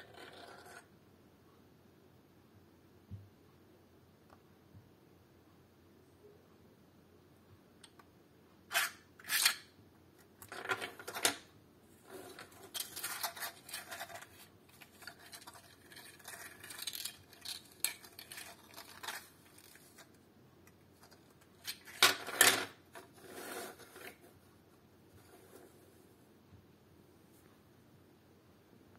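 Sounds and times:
plastic fidget toy clattering: 12.3s - 20.1s.

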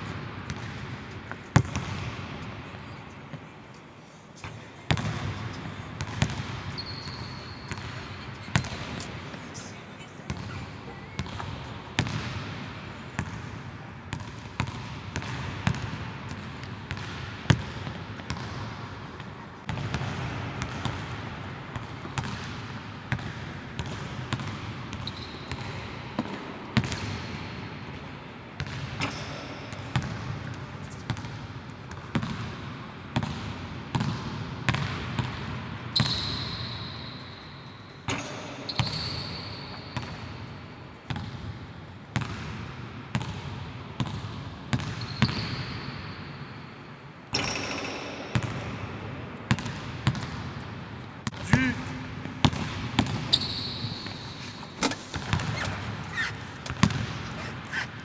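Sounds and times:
sneakers squeaking on floor: 4.4s - 9.7s, 10.3s - 12.2s, 23.8s - 26.0s, 36.0s - 40.4s, 44.7s - 46.4s, 47.3s - 48.5s, 51.2s - 58.0s.

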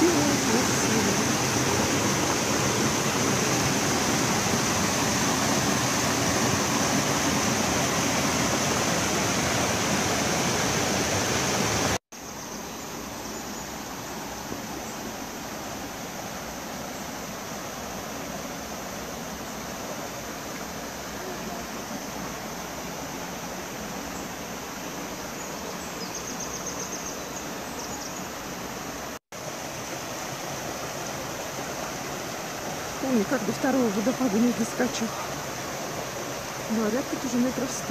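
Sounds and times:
creek flowing over rocks: 0.0s - 12.0s, 28.4s - 37.9s.

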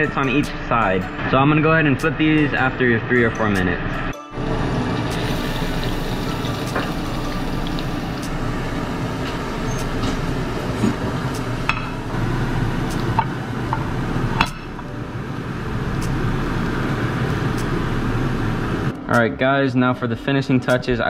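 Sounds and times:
rushing kitchen background noise: 4.4s - 19.0s.

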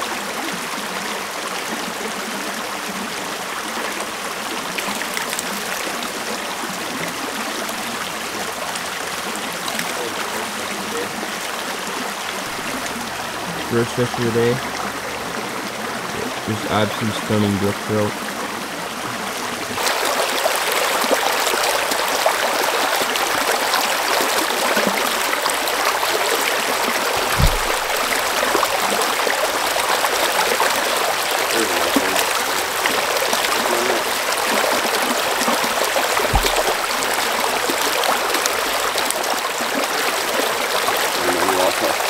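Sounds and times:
creek babbling over stones: 0.0s - 42.0s
dull low thumps: 27.2s - 28.6s, 36.3s - 37.1s.

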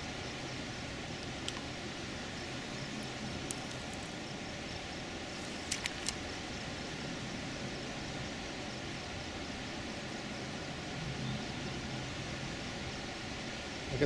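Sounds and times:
outdoor background hiss: 0.0s - 14.0s
sharp clicks: 5.4s - 6.2s.

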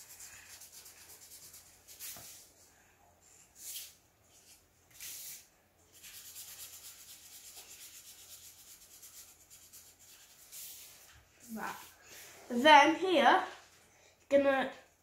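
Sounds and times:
marker scribbling on paper: 0.0s - 2.4s, 4.9s - 11.9s.

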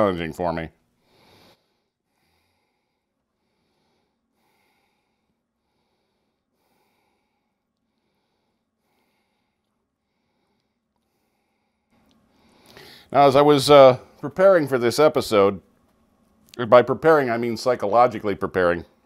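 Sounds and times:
faint breathing: 0.9s - 13.2s.

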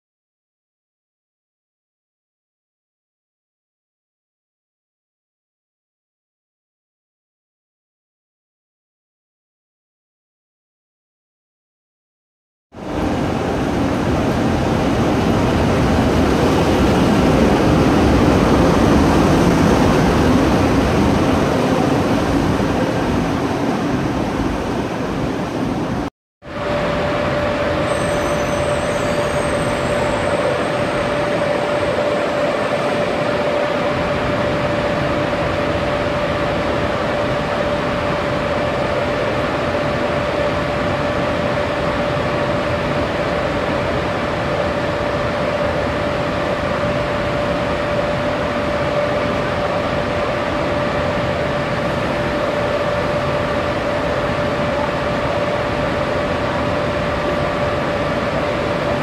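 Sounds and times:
steady mid-pitched whine: 12.8s - 59.0s
electric locomotive blowers running: 26.6s - 59.0s.

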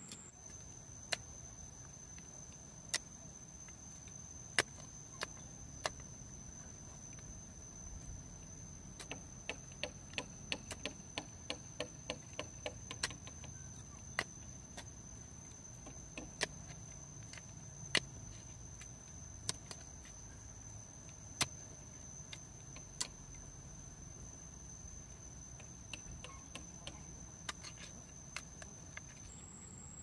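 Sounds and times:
high insect trill: 0.0s - 30.0s
hand tool knocking on wood: 9.0s - 13.6s.

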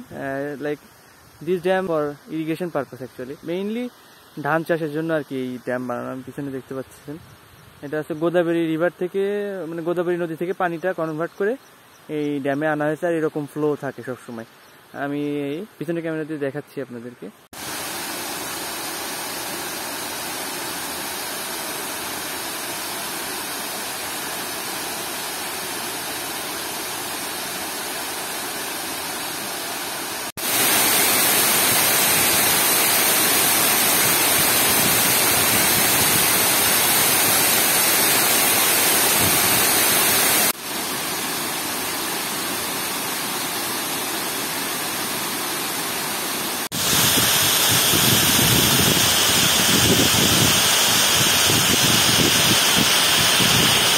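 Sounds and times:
water cascading down a spillway: 17.5s - 53.9s.

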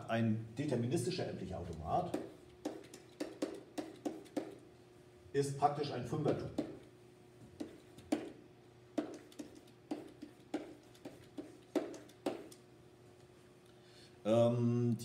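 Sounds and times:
faint steady hum: 0.0s - 15.0s
pen tapping on whiteboard: 2.0s - 4.6s, 6.2s - 6.8s, 7.6s - 12.6s.

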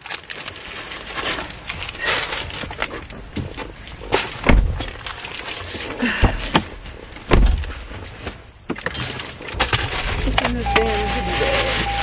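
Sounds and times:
clicks and knocks inside a car: 3.0s - 5.4s, 6.1s - 10.4s
heavy thumps: 6.2s - 8.3s.

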